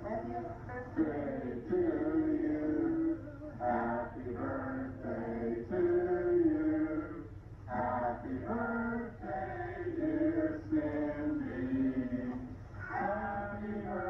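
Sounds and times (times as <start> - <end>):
people singing together: 0.0 - 14.0.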